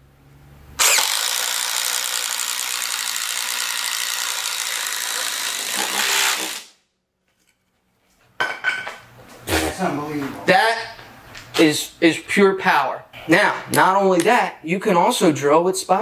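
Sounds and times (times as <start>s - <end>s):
impact driver boring through wood: 0.8s - 6.7s.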